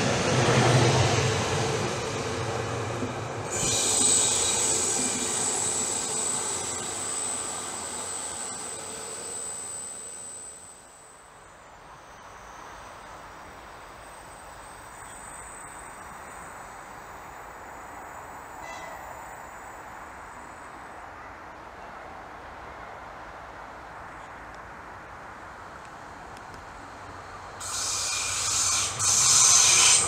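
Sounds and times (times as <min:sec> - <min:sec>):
electric train running on rails: 0:00.0 - 0:30.0.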